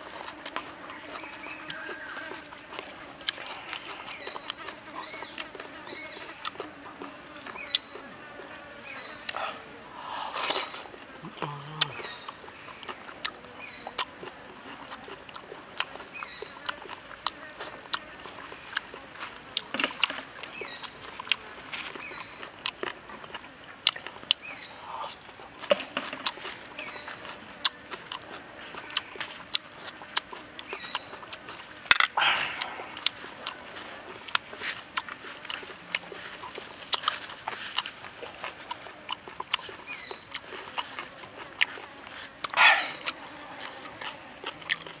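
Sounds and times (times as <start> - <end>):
chewing and lip smacks: 0.0 - 8.6, 10.3 - 45.0
bird chirping: 0.8 - 2.5, 3.8 - 8.0, 8.7 - 10.8, 11.8 - 13.0, 13.6 - 14.1, 16.1 - 16.7, 20.5 - 21.0, 22.0 - 22.5, 24.4 - 25.1, 26.8 - 27.2, 30.7 - 31.2, 39.9 - 40.4, 42.5 - 43.1.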